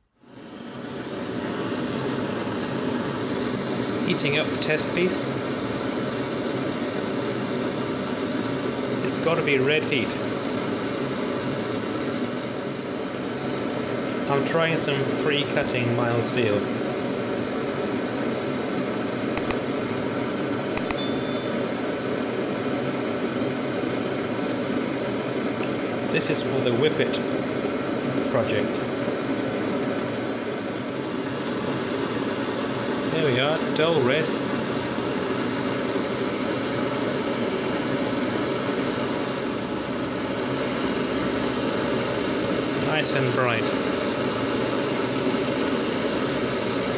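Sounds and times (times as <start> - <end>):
blowtorch burning: 0.1 - 46.9
bell ding: 20.8 - 21.7.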